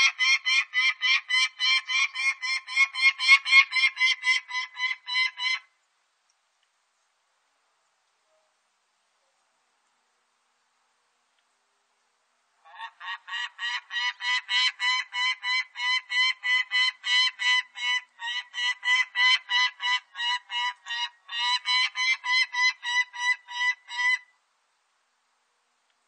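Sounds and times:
falcon cackling call: 0:00.0 - 0:05.7, 0:12.7 - 0:24.3.

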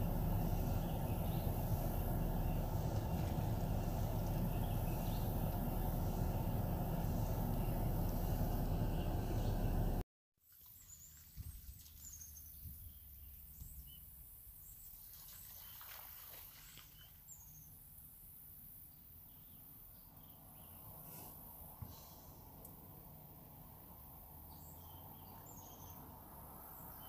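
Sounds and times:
birds chirping: 0:00.0 - 0:10.0
loud low rumbling: 0:00.0 - 0:10.0
splashing in shallow water: 0:10.4 - 0:12.5, 0:14.8 - 0:17.5.

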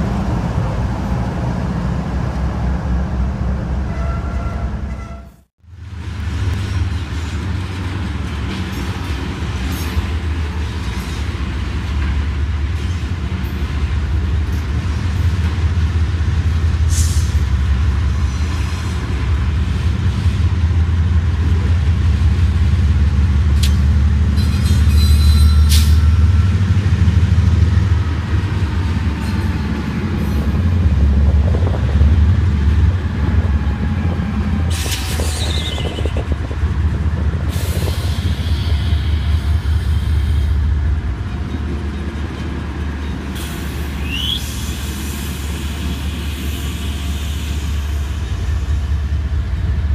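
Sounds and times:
diesel locomotives rumbling: 0:00.0 - 0:49.9
faint wheel squeal on rail: 0:03.9 - 0:05.4, 0:24.4 - 0:26.6, 0:34.7 - 0:36.4, 0:37.5 - 0:40.6, 0:43.4 - 0:48.9
train car clanks: 0:06.5 - 0:15.7, 0:23.5 - 0:26.6.

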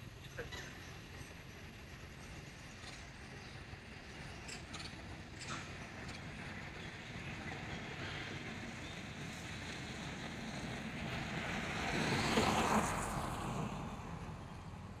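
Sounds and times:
outdoor background noise: 0:00.0 - 0:15.0
vehicle passing by: 0:10.9 - 0:15.0.

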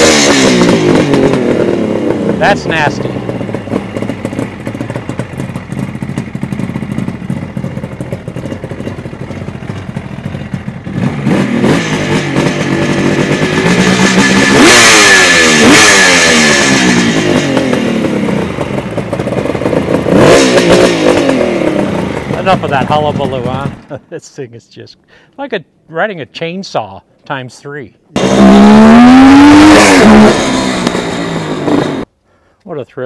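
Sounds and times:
motorcycle engine idling and revving: 0:00.0 - 0:24.1, 0:28.1 - 0:32.1.

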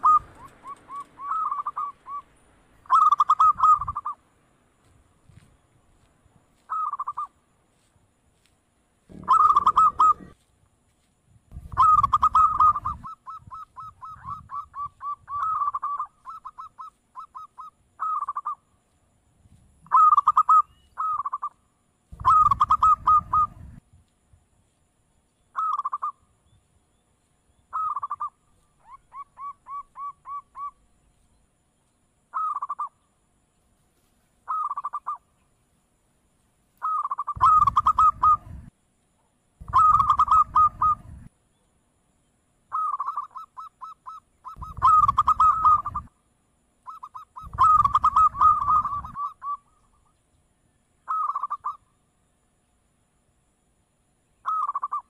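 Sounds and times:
dove cooing: 0:00.0 - 0:04.2, 0:06.6 - 0:07.3, 0:09.1 - 0:10.4, 0:11.6 - 0:18.6, 0:19.8 - 0:21.5, 0:22.1 - 0:23.8, 0:27.7 - 0:30.8, 0:36.8 - 0:38.7, 0:39.6 - 0:41.3, 0:42.7 - 0:46.1, 0:46.9 - 0:49.8, 0:51.1 - 0:51.8, 0:54.4 - 0:55.0.

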